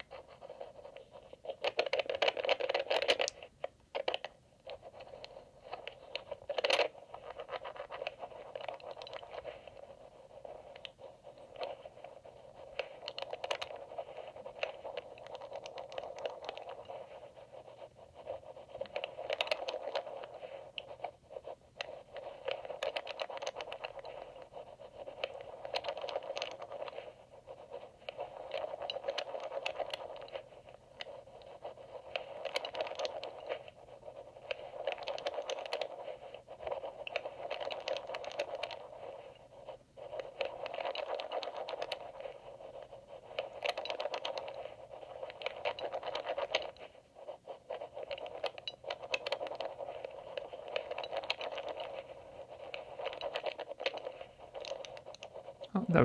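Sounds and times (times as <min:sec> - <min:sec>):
lock pick scratching and scraping: 0:21.8 - 0:55.7.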